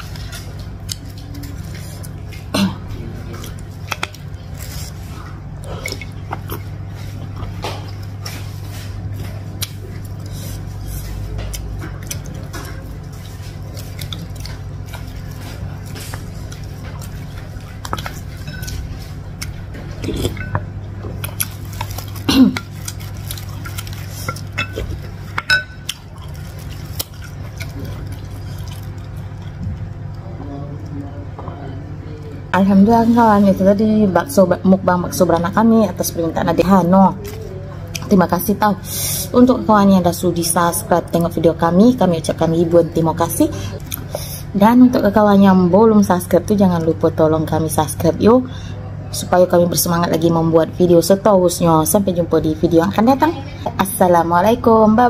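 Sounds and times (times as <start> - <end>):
soft liquid sounds: 0.0 - 32.5
steady low hum: 0.0 - 55.0
utensils knocking against bowl: 24.3 - 25.8.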